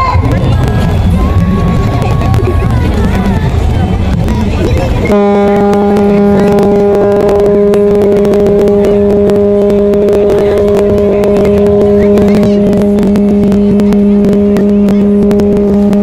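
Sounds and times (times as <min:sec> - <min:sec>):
ship's horn blast: 0:05.0 - 0:16.0.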